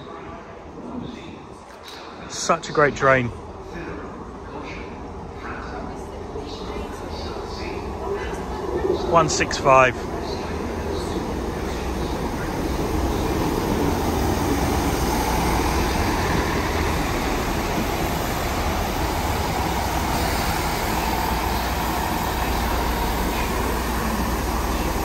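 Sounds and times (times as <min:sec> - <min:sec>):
diesel train engine rumble: 0:05.2 - 0:25.0.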